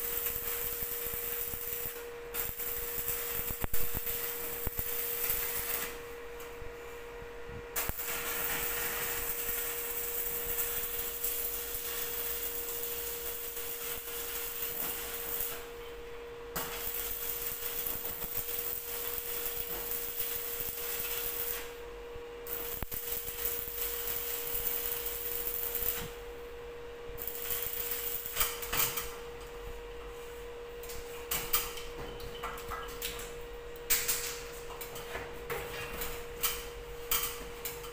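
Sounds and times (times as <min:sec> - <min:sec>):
welding arc crackling: 0:00.0 - 0:06.1, 0:07.8 - 0:15.7, 0:16.5 - 0:21.8, 0:22.4 - 0:26.2, 0:27.2 - 0:29.1
steady hum: 0:00.0 - 0:37.9.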